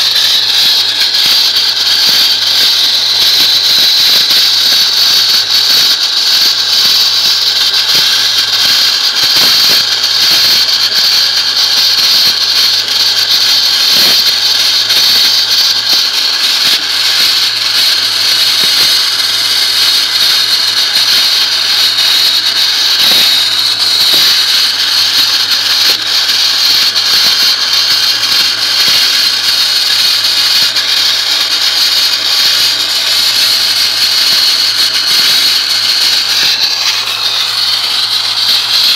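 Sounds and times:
wet-blasting nozzle hissing: 0.0s - 38.9s.

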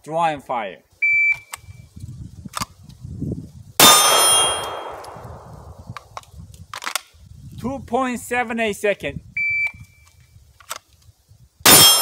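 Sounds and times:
steel target ringing: 3.8s - 5.4s, 11.7s - 12.0s
pistol shot: 3.8s - 5.7s, 11.7s - 12.0s.

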